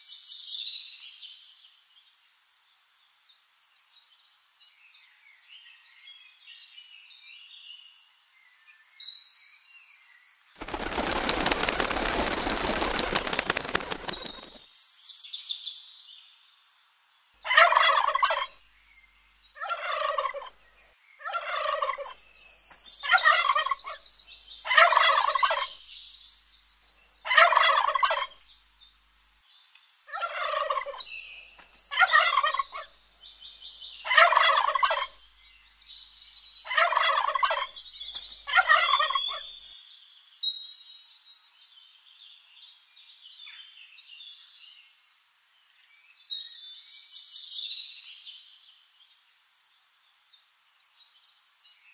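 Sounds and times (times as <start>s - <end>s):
turkey gobbling: 17.5s - 18.5s, 19.6s - 20.5s, 21.2s - 22.1s, 23.1s - 24.0s, 24.7s - 25.7s, 27.3s - 28.3s, 30.1s - 31.0s, 32.0s - 32.9s, 34.1s - 35.1s, 36.7s - 37.7s, 38.5s - 39.4s.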